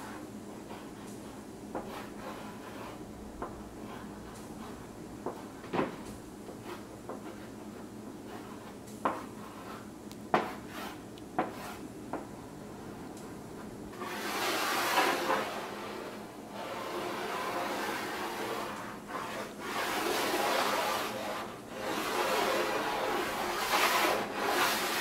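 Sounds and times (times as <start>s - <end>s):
chalk scratching on board: 0.0s - 5.5s, 6.5s - 11.8s, 14.0s - 25.0s
chalk tapping on chalkboard: 0.7s - 12.3s.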